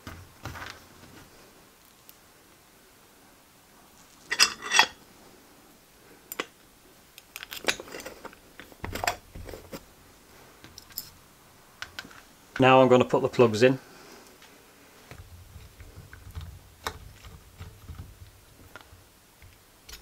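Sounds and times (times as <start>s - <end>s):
small metal parts clinking: 4.3s - 5.0s, 10.6s - 11.2s.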